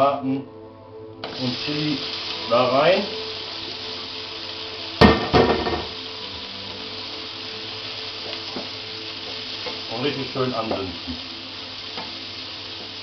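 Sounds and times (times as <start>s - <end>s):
food sizzling in oil: 1.2s - 13.0s
sharp knock: 5.0s - 5.9s.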